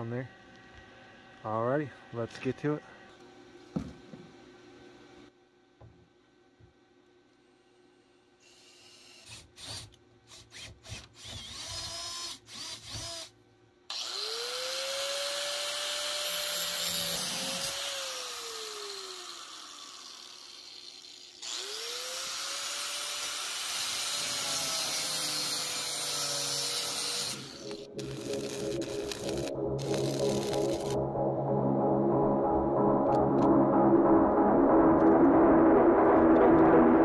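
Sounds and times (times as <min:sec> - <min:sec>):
cordless drill boring into steel: 0:08.4 - 0:13.3, 0:13.9 - 0:28.4
angle grinder grinding steel: 0:13.9 - 0:31.0.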